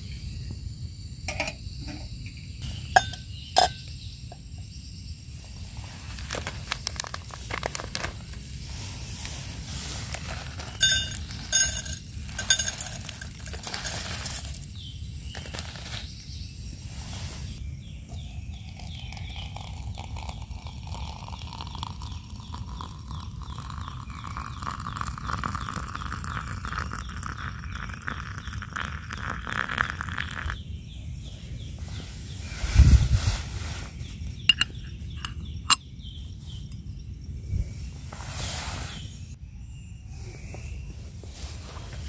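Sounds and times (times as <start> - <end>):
metal clinks: 10.6 - 14.6
water pouring into mug: 18.2 - 30.6.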